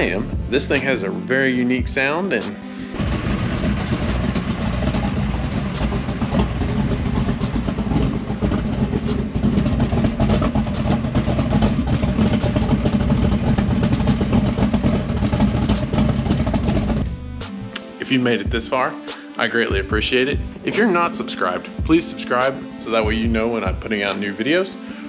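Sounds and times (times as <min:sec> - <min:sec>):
deep pulsing engine exhaust: 0:00.0 - 0:01.0, 0:02.7 - 0:17.7.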